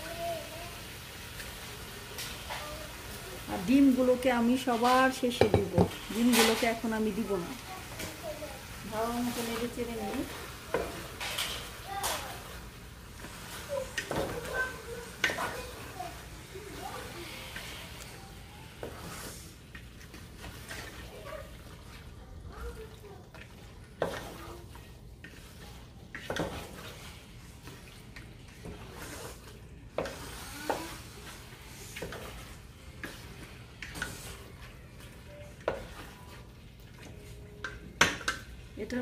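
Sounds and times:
faint steady sizzle: 0.0s - 39.0s
spoon scraping and knocking pan: 4.6s - 7.3s, 23.3s - 38.6s.

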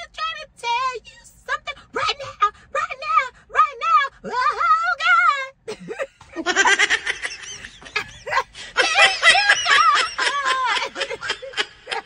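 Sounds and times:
woman laughing loudly: 5.7s - 12.0s.

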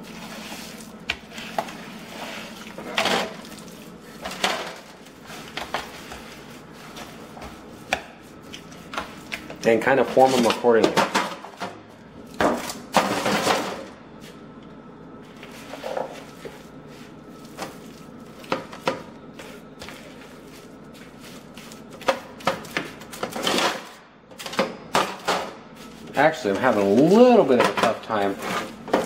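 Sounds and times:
hands squishing meat mixture: 0.0s - 4.2s, 4.9s - 10.6s, 15.3s - 23.4s.

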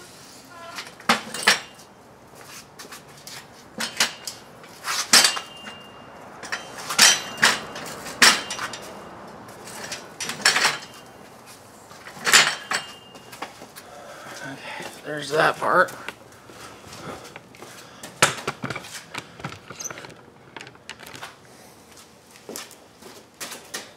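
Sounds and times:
metal clanks and knocks: 0.6s - 1.8s, 3.8s - 4.4s, 5.0s - 9.0s, 9.6s - 11.1s, 12.0s - 13.5s.

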